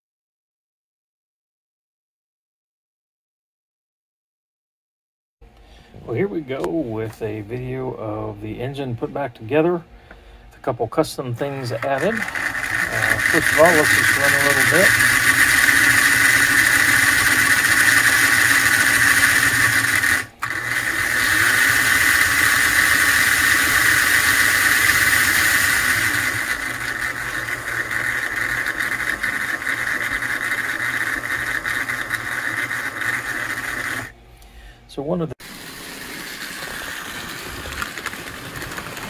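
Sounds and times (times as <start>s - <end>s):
toy locomotive motor and gears: 11.5s - 34.1s, 35.4s - 39.0s.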